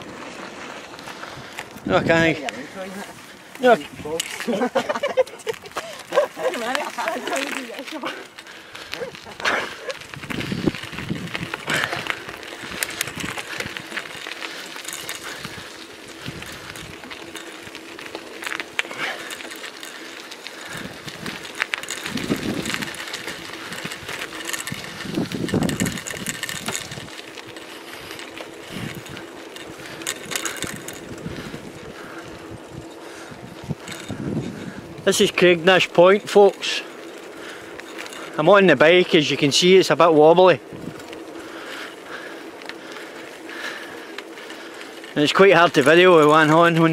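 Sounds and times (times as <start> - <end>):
bicycle rattling and clinking: 0.0 - 46.9
wind buffeting microphone: 1.2 - 2.5, 8.6 - 18.0, 20.1 - 35.4, 40.6 - 41.7.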